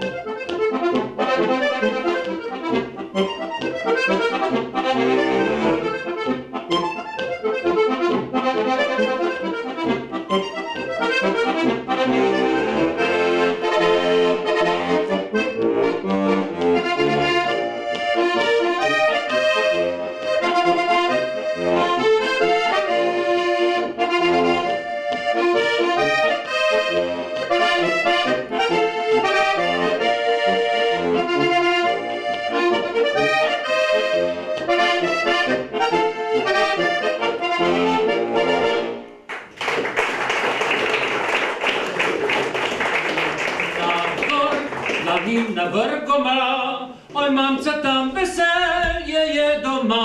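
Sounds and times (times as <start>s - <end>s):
accordion folk tune: 0.0s - 50.0s
applause: 39.3s - 45.5s.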